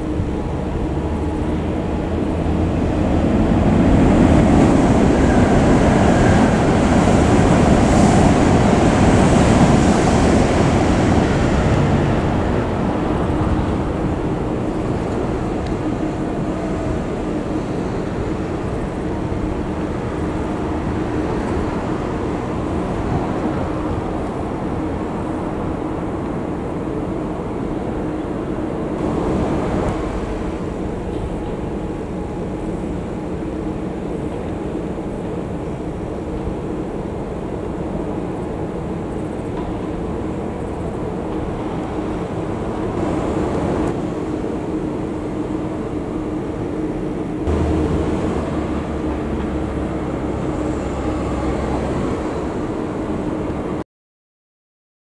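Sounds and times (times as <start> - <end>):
train passing: 0.0 - 53.8.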